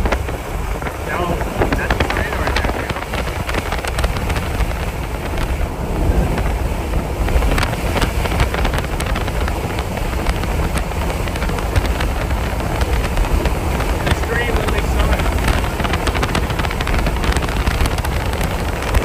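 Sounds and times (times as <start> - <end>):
wind buffeting microphone: 0.0 - 19.0
scattered ticks: 7.3 - 19.0.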